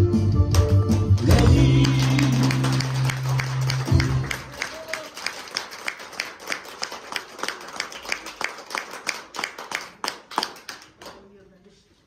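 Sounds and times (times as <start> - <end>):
song music: 0.0 - 4.6
audience clapping: 0.4 - 11.4.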